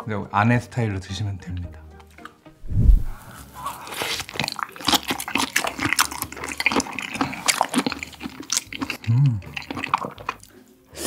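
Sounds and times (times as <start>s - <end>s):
wet chewing of food: 3.1s - 11.0s.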